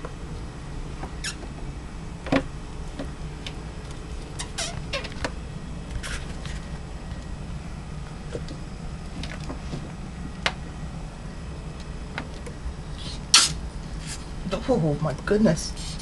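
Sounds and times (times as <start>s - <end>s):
mink squeaking and chirping: 1.2s - 1.5s, 4.3s - 5.2s.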